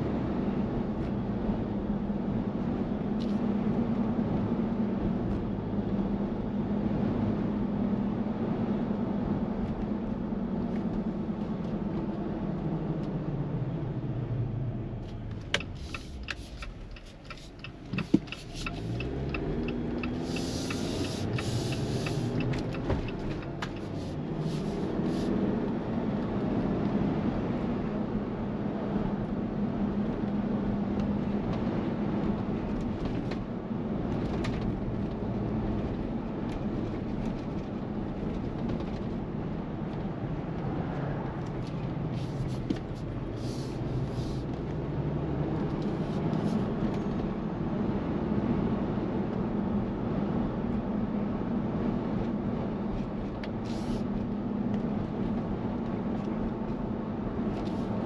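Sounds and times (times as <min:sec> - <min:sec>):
road noise: 0:00.0 - 0:58.0
car engine running: 0:14.8 - 0:25.3.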